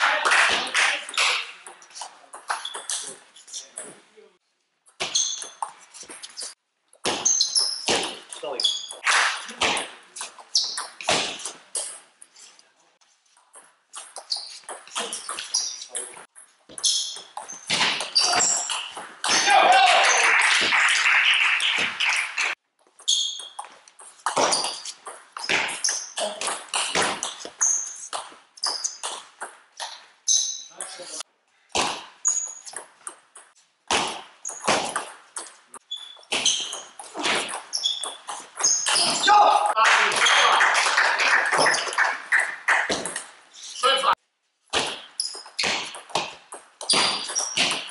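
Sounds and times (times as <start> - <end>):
shoes squeaking on floor: 1.0 - 4.1, 4.9 - 9.1, 10.1 - 19.5, 22.8 - 31.2, 32.0 - 40.5, 44.8 - 47.9.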